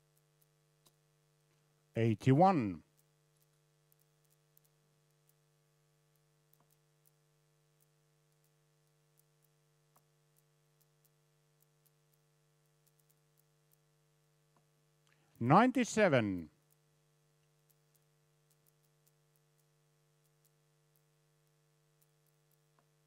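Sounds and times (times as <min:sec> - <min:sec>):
faint ticks: 0:00.0 - 0:01.9, 0:02.8 - 0:15.4, 0:16.4 - 0:23.0
faint electrical hum: 0:00.0 - 0:23.0.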